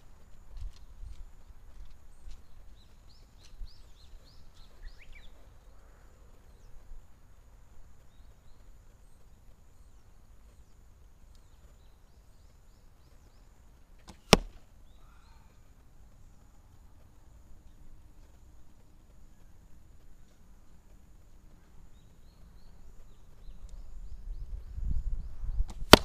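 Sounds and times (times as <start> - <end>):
birds chirping faintly: 0.0 - 26.0
arrow striking target: 14.0 - 14.6, 25.6 - 26.0.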